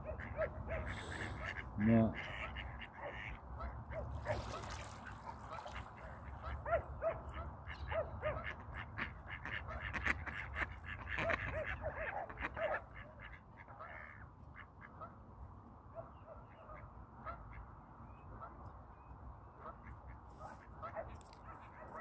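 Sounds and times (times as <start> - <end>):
ducks quacking: 0.0 - 6.7, 7.3 - 15.0.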